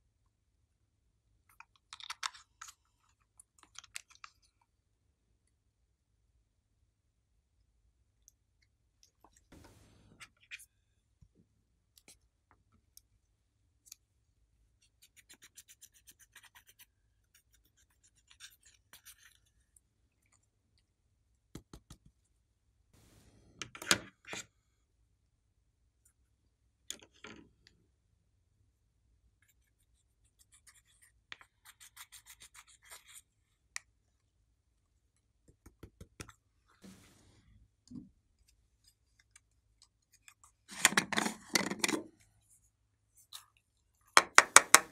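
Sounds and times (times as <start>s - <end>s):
fine rubbing: 36.8s - 37.5s.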